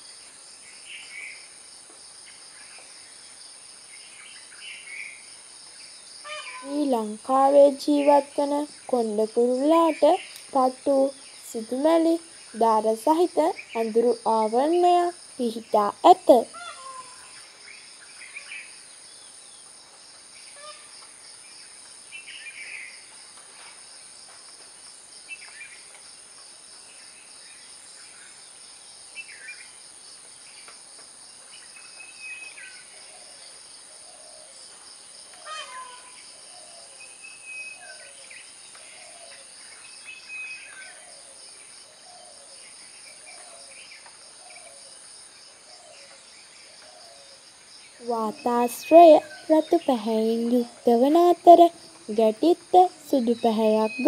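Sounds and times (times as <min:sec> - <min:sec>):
insect drone: 0:00.0 - 0:54.0
bird calls: 0:06.2 - 0:07.1, 0:16.3 - 0:18.8, 0:35.3 - 0:44.8.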